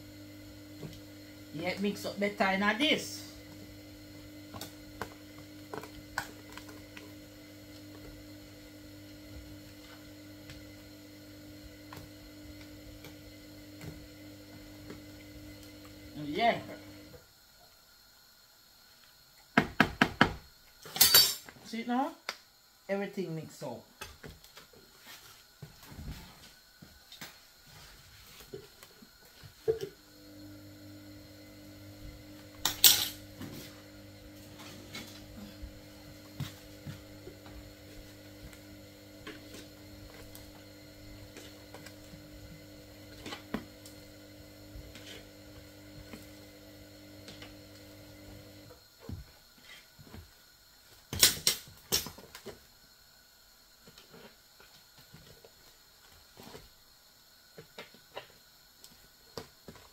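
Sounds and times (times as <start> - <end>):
appliance electrical hum: 0.0 - 59.9.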